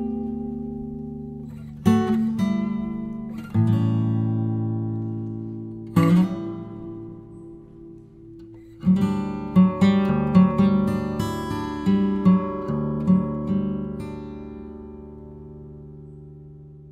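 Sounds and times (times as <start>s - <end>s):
strummed acoustic guitar: 0.0s - 16.9s.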